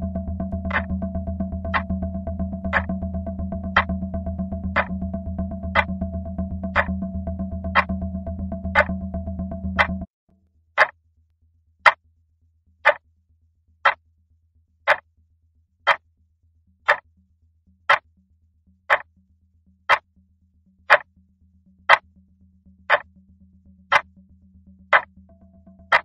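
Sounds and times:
faint low hum: 0.0 - 10.0
clock ticking: 0.6 - 0.9, 1.7 - 1.9, 2.7 - 2.9, 3.7 - 4.0, 4.7 - 5.0, 5.7 - 6.0, 6.7 - 7.0, 7.7 - 8.0, 8.7 - 8.9, 9.8 - 10.1.

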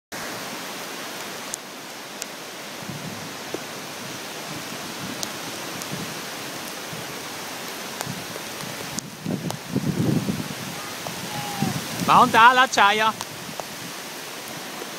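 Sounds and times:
heavy rain pouring: 0.1 - 14.9
single raindrop ticks: 5.2 - 5.9, 13.2 - 13.8.

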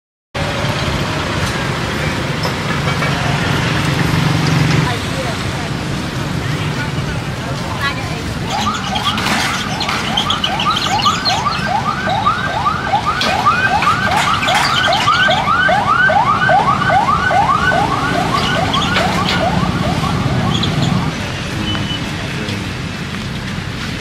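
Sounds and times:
low traffic rumble: 0.4 - 24.0
electronic siren yelping: 8.5 - 21.1.

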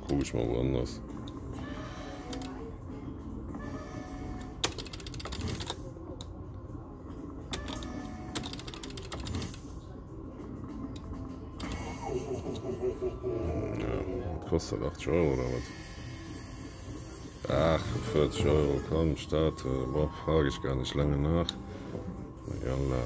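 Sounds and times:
low background hum: 0.0 - 23.0
slot machine rapid electronic ticking: 4.1 - 5.8, 7.5 - 9.7.

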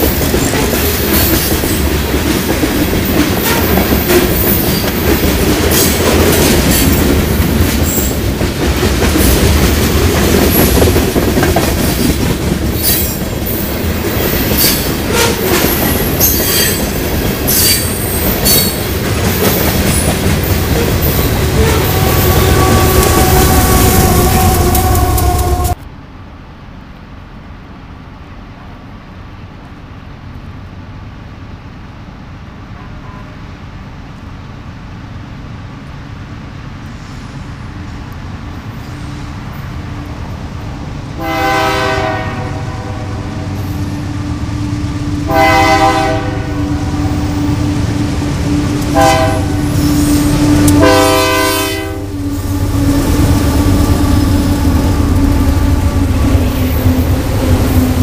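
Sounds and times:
diesel locomotives rumbling: 0.0 - 58.0
locomotive horn: 14.6 - 16.8, 20.7 - 25.8, 32.8 - 33.5, 41.2 - 57.8.

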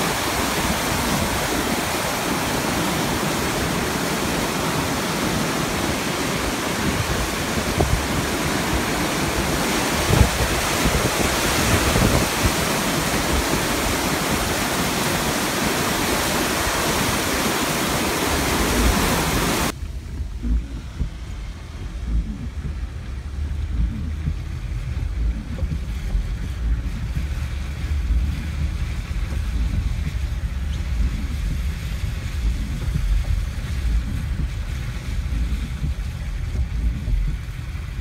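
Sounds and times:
water rushing through spillway: 0.0 - 38.0
wind on microphone: 0.0 - 38.0.

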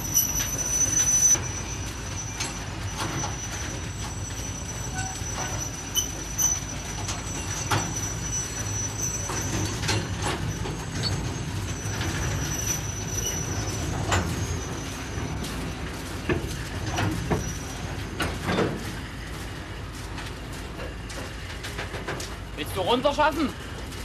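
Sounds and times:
thin high squeal: 0.0 - 15.7
freight wagon rumbling: 0.0 - 24.0
clanks and knocks: 9.2 - 19.1, 20.1 - 22.5.

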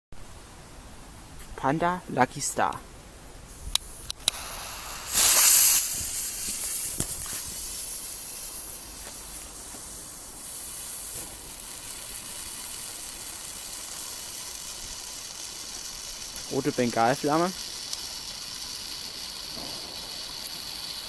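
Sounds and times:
fountain firework hissing: 3.5 - 21.0
sharp clicks: 3.7 - 5.7.

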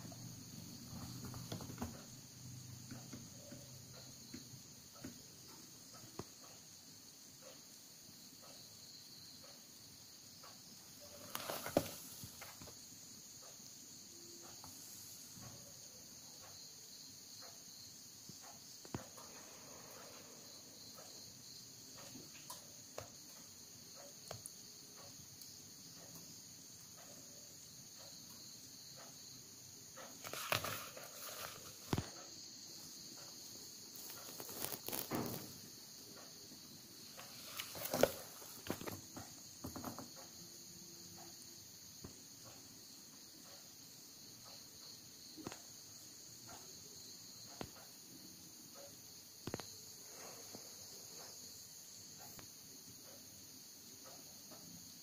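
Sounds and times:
steady high-pitched hiss: 0.0 - 55.0
book pages rustling: 11.2 - 12.6, 30.2 - 32.1, 34.0 - 35.4, 37.2 - 39.1.

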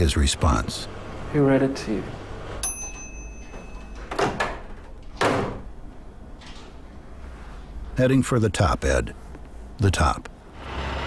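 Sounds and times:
microwave oven beeping: 2.5 - 5.0.

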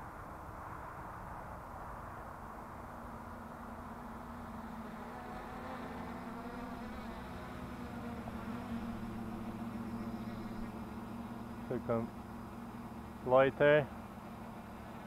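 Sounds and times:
quadcopter propellers buzzing: 4.4 - 15.0.

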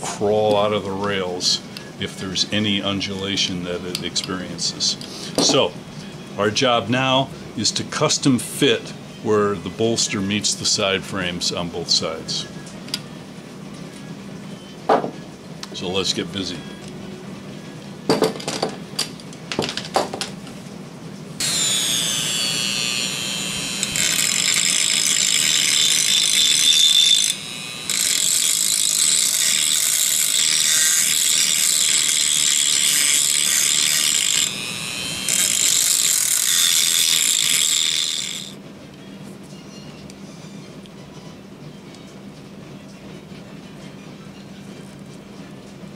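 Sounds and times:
rotary tool whining while grinding: 21.4 - 38.6.

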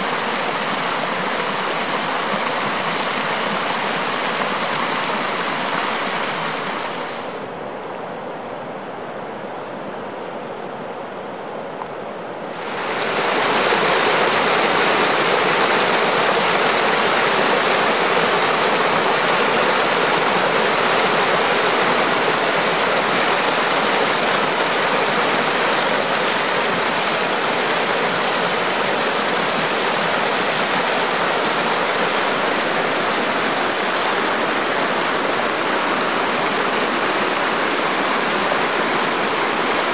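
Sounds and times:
water splashing over rocks: 12.5 - 39.9.

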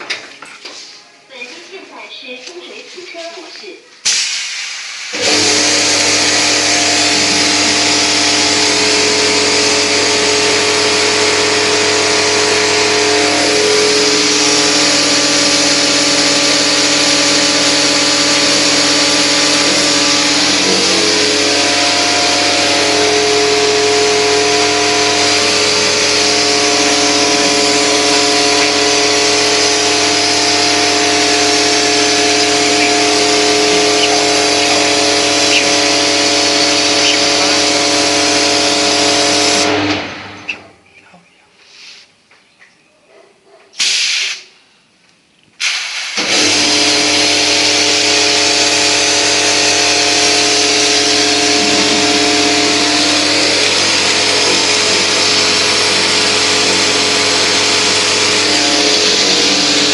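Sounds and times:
water spray hiss: 4.0 - 5.2, 43.8 - 44.5, 45.6 - 46.2
pump motor humming: 5.0 - 40.7, 45.6 - 59.9.

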